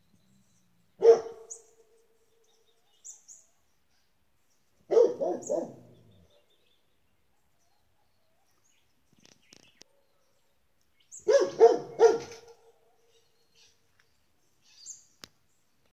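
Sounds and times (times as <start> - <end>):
dog barking: 1.0 - 1.6, 4.9 - 6.0, 11.2 - 13.2.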